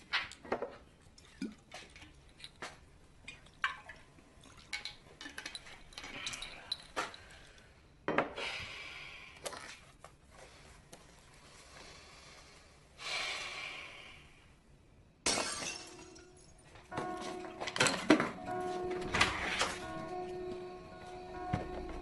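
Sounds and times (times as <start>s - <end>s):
glass shattering: 15.2s - 19.9s.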